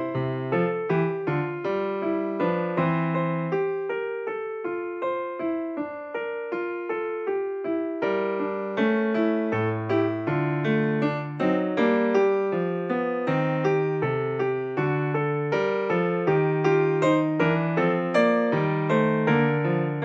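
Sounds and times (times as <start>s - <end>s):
piano melody: 0.0s - 20.0s.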